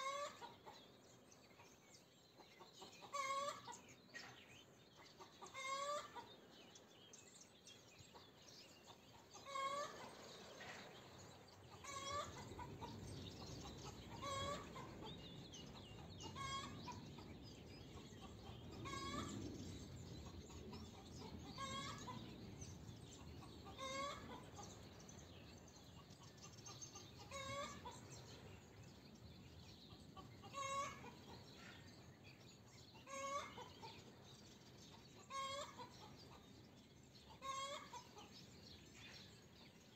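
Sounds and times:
hen clucking: 0.0s - 0.9s, 2.6s - 3.8s, 5.0s - 6.3s, 8.9s - 10.9s, 11.6s - 19.5s, 20.3s - 22.3s, 23.2s - 24.9s, 26.0s - 28.4s, 29.9s - 31.6s, 33.0s - 34.0s, 34.9s - 36.4s, 37.3s - 38.4s
small birds chirping: 0.0s - 39.9s.

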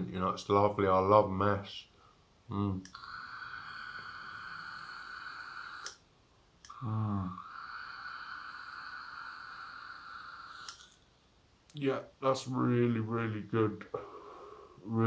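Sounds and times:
airflow whistle through vape: 2.9s - 6.0s, 6.7s - 11.0s.

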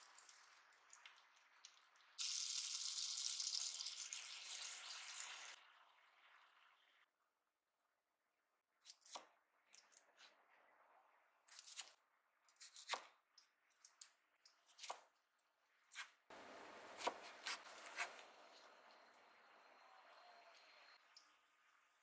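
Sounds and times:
knife slicing cucumber: 11.5s - 13.2s, 14.6s - 15.1s, 15.9s - 18.3s.

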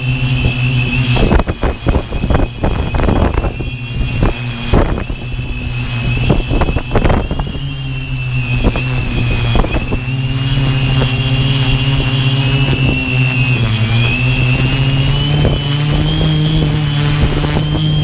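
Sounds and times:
drone motors humming and whining: 0.0s - 18.0s
wind buffeting microphone: 0.0s - 18.0s.

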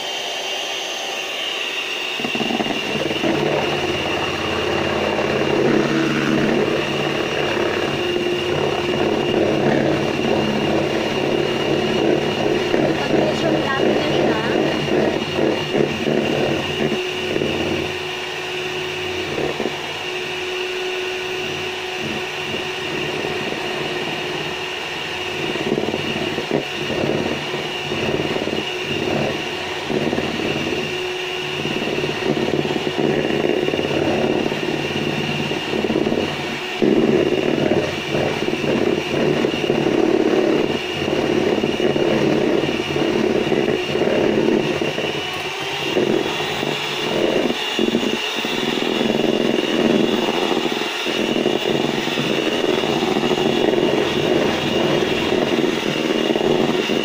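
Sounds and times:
electric hand mixer running: 0.0s - 57.0s
beaters scraping bowl: 2.2s - 57.0s.

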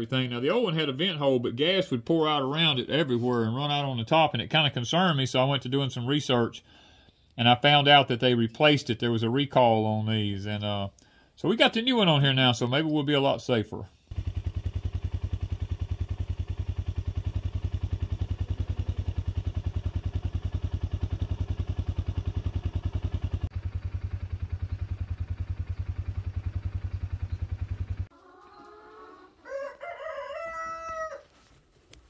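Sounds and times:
vehicle engine chugging: 14.1s - 28.1s
rooster crowing: 28.2s - 31.4s.

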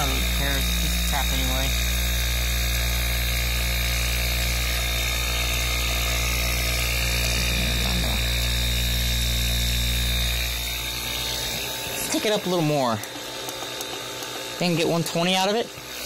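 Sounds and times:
compressor pump running: 0.0s - 16.0s.

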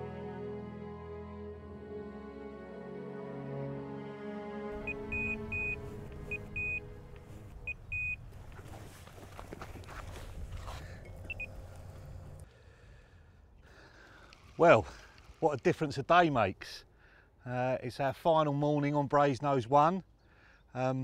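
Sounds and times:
background music: 0.0s - 8.2s
bite alarm beeping: 4.8s - 8.3s, 11.3s - 11.6s.

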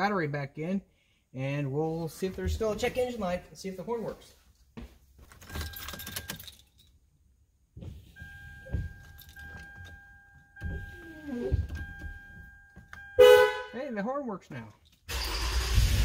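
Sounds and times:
keys jangling: 5.3s - 7.0s
dashboard warning chime: 8.0s - 13.8s.

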